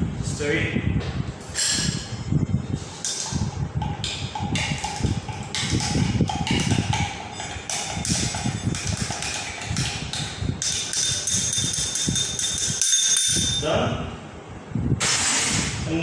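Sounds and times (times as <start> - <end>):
spoon clinking against glass: 3.0 - 13.6.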